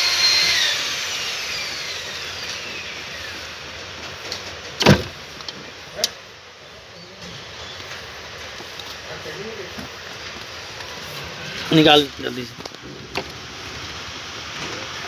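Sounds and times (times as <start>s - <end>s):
small motor whine winding down: 0.0s - 3.7s
sharp knocks: 4.8s - 5.2s.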